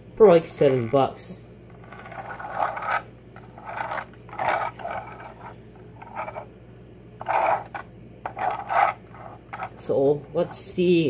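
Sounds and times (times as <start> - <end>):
toy truck wheels rolling on carpet: 1.8 - 6.4.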